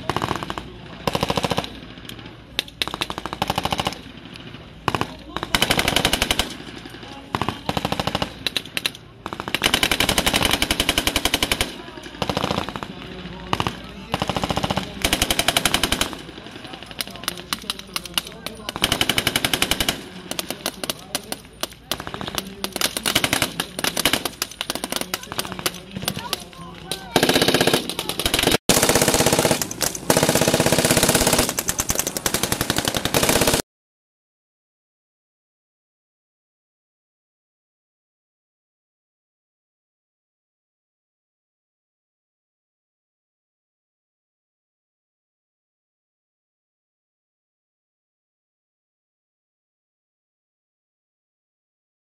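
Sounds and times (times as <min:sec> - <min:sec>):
machine-gun fire: 0:00.0 - 0:02.1, 0:02.8 - 0:33.6
automatic rifle gunfire: 0:04.9 - 0:06.7, 0:07.3 - 0:33.6.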